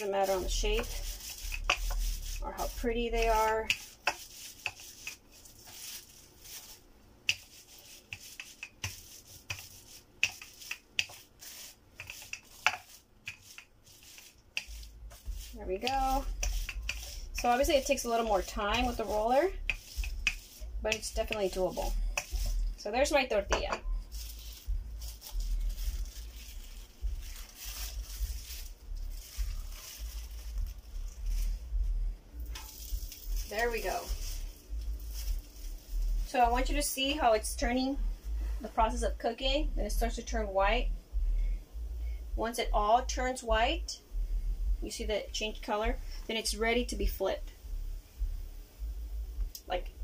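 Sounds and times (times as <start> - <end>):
plastic sheet crinkling: 0.0 - 22.8, 24.0 - 36.8
low steady hum: 0.0 - 50.0
plastic bag crinkling: 3.7 - 8.1, 24.0 - 31.8, 32.4 - 36.7.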